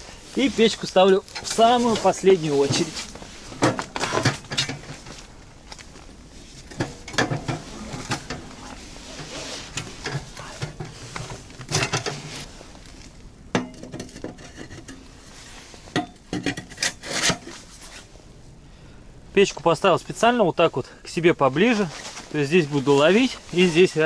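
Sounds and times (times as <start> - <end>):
metal clanks and scraping: 0.6 - 5.9, 6.5 - 18.1.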